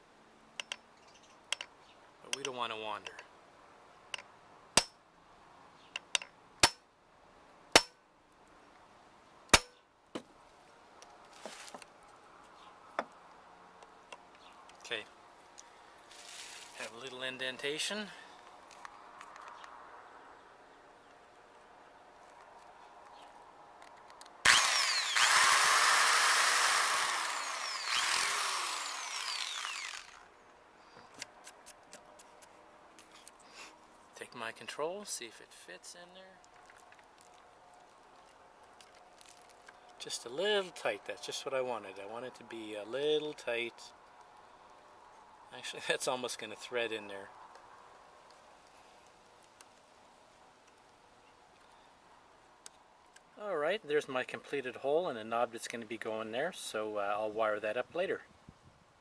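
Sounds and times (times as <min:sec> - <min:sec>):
electric drill boring: 0:24.4 - 0:30.3.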